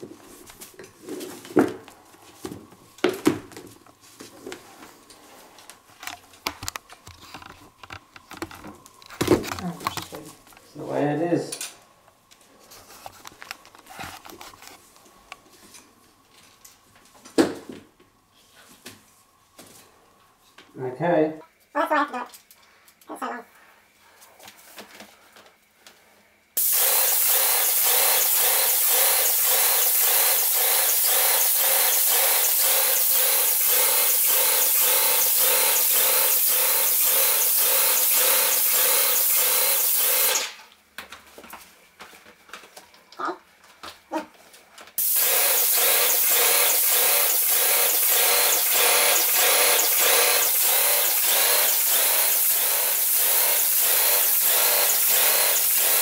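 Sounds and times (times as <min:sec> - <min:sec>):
paint sprayer hissing: 0:26.6 - 0:40.6, 0:45.0 - 0:56.0.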